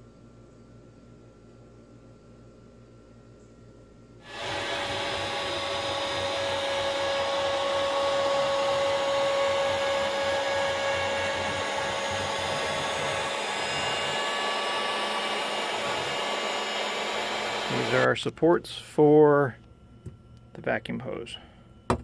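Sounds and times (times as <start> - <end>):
router spindle whining: 4.3 - 18.3.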